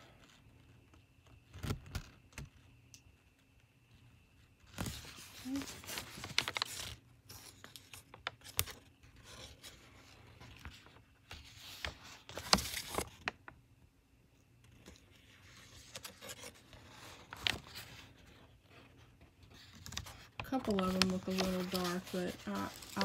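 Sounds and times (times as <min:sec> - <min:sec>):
paper crinkling and rustling: 0:04.6 - 0:13.5, 0:14.6 - 0:23.0.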